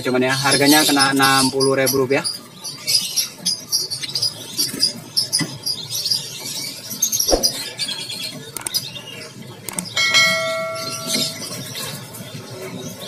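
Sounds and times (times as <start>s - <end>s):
songbirds chirping and twittering: 0.0s - 13.0s
bell-like chime: 10.0s - 11.8s.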